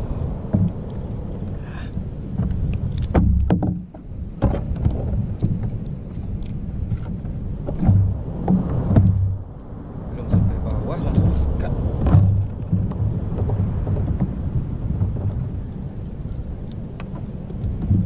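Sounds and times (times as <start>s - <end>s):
water against boat hull: 0.0s - 18.0s
wind rumbling on microphone: 0.0s - 18.0s
sharp knocks on boat: 0.5s - 0.9s, 2.4s - 5.8s, 7.0s - 9.4s, 10.2s - 15.7s, 17.0s - 18.0s.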